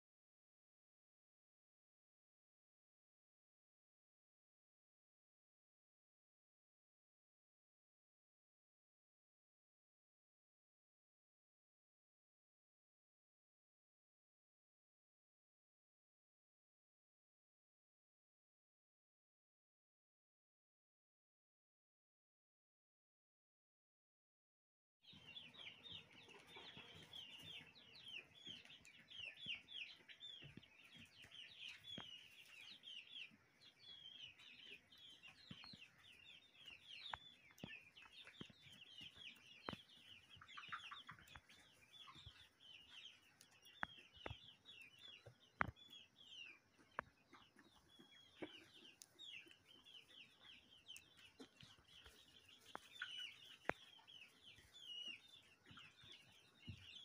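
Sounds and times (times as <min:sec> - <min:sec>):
hens chirping and clucking: 0:25.0 - 0:57.0.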